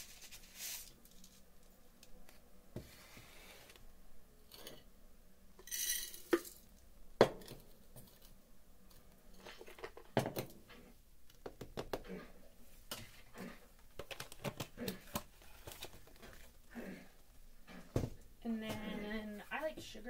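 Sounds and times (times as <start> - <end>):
oats rustling pour: 0.0 - 1.4, 5.6 - 6.7.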